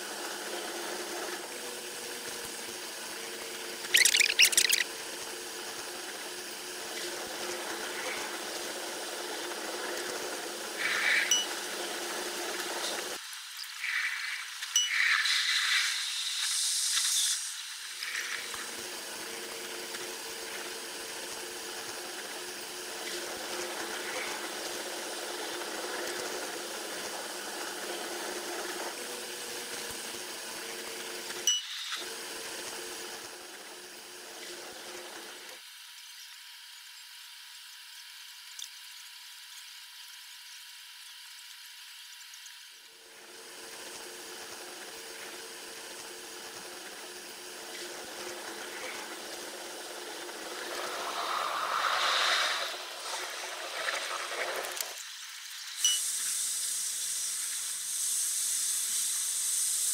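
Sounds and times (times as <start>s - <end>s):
short sharp squeals: 3.9s - 4.8s
sped-up train on rails hissing: 5.0s - 35.6s, 43.1s - 59.9s.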